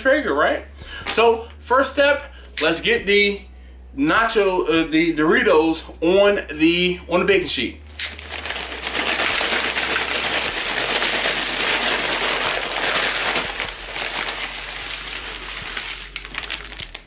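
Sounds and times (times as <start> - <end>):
bag crinkling: 8.0 - 17.0
chips clattering on foil: 8.0 - 17.0.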